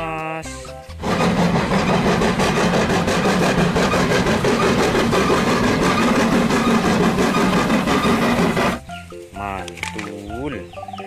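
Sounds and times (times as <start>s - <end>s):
steam locomotive chuffing: 1.0s - 8.8s
train rumble: 1.0s - 8.9s.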